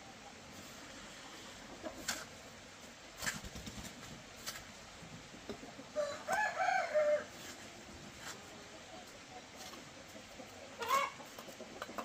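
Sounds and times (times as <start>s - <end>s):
chicken call: 10.8s - 11.2s.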